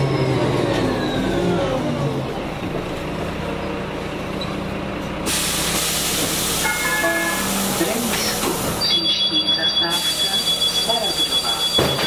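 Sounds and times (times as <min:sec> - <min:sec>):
bus whine: 0:00.0 - 0:12.0
diesel engine idling: 0:00.4 - 0:12.0
compressed air hiss: 0:05.3 - 0:08.5.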